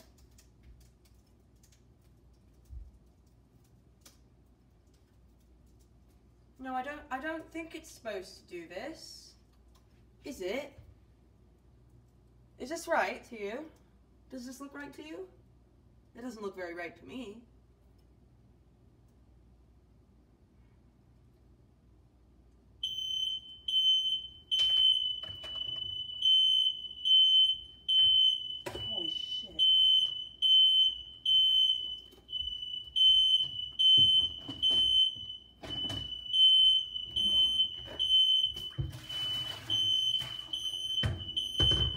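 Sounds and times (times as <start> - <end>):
smoke alarm beeping: 22.8 - 41.9.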